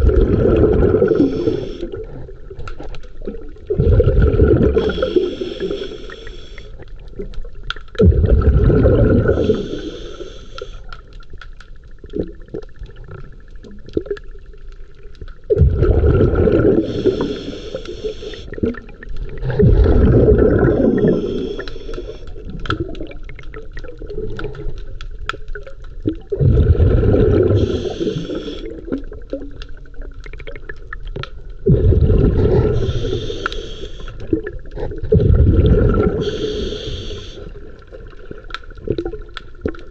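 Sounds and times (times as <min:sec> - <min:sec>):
exhaled air bubbling underwater: 0:00.0 - 0:39.9
underwater water noise: 0:00.0 - 0:39.9.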